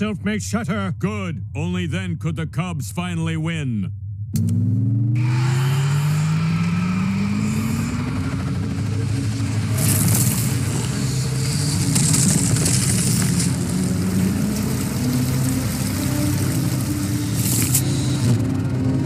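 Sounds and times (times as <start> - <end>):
hum rising in pitch: 3.9 - 19.0
rumbling roar with hissing surges: 5.3 - 18.4.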